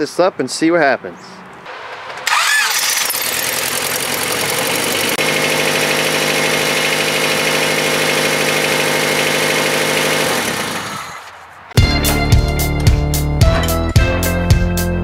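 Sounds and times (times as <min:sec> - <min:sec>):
car engine idling: 0:01.7 - 0:11.2.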